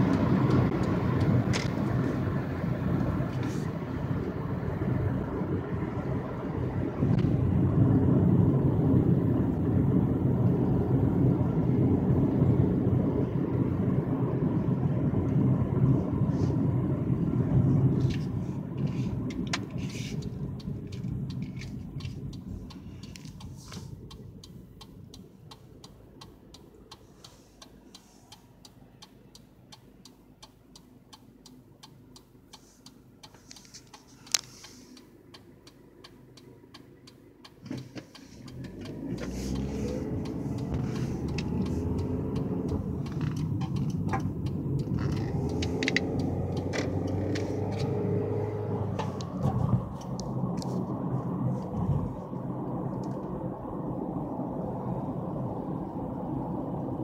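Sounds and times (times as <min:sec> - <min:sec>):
vehicle engine humming: 0:00.0 - 0:57.0
faint ticking: 0:20.2 - 0:47.4.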